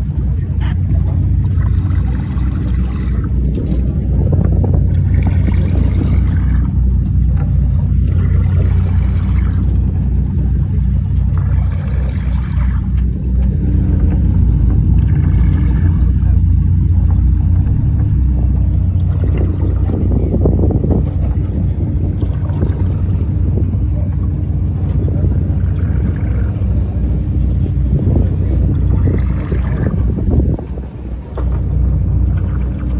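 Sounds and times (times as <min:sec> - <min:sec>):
boat engine drone: 0:00.0 - 0:32.9.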